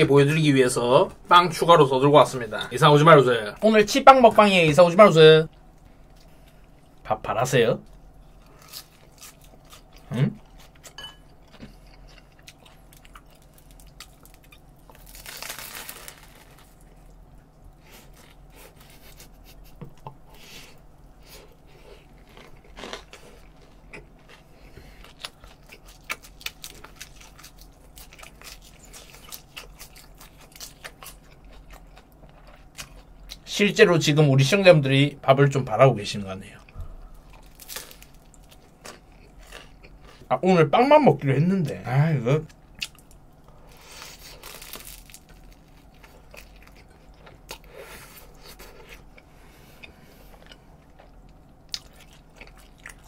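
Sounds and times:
crunchy chewing: 8.2s - 20.1s, 21.2s - 33.4s, 36.6s - 40.3s, 42.4s - 53.0s.

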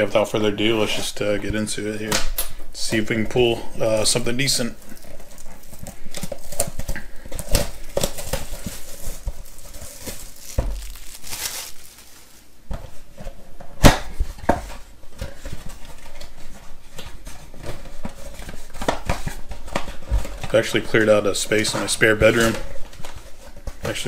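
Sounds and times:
plastic wrap crinkling and tearing: 3.8s - 12.6s.

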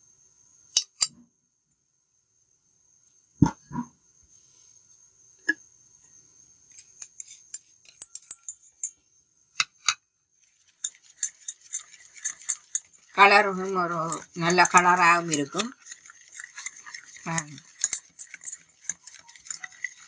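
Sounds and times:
whisk clinking in metal bowl: 7.1s - 8.9s, 10.5s - 20.0s.

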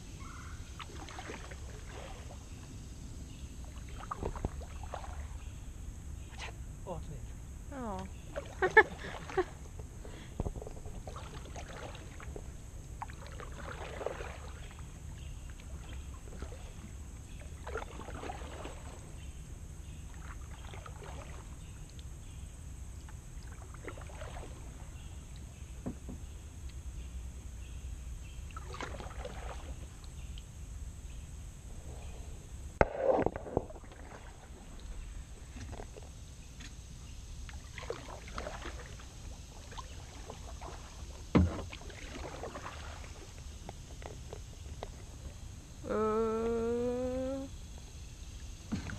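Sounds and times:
kayak paddle strokes in water: 0.7s - 2.7s, 3.6s - 5.6s, 8.3s - 19.1s, 32.8s - 45.4s.

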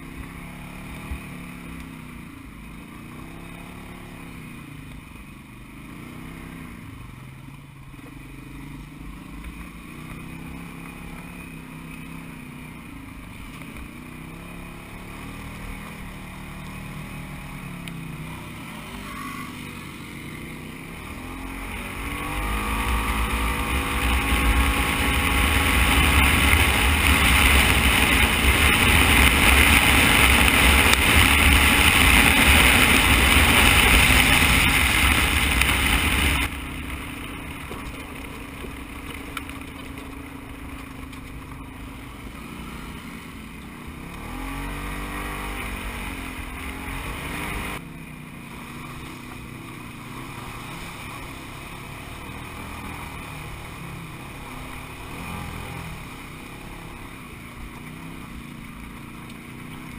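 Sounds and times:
utility vehicle engine revving: 14.2s - 47.9s, 50.0s - 59.9s
steady rushing noise: 20.8s - 47.8s.

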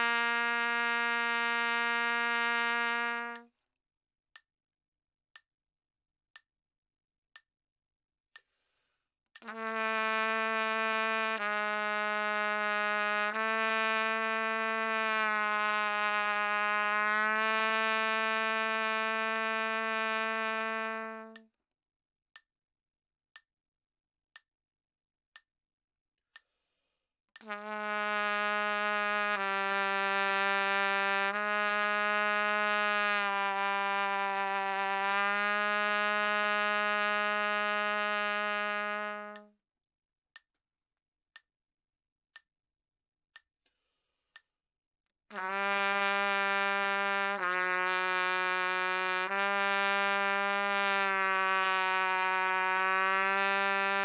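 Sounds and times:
trumpet playing long low notes: 0.0s - 3.4s, 9.4s - 21.4s, 27.4s - 39.5s, 45.3s - 54.0s
metronome clicks: 20.5s - 21.5s, 39.2s - 39.5s.

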